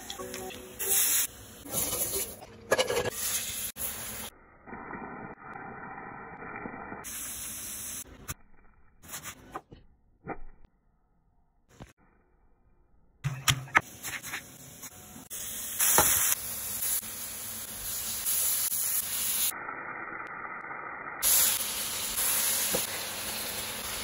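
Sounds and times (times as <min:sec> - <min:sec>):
food sizzling in a pan: 0:00.8 - 0:08.1, 0:15.3 - 0:20.1, 0:21.2 - 0:24.0.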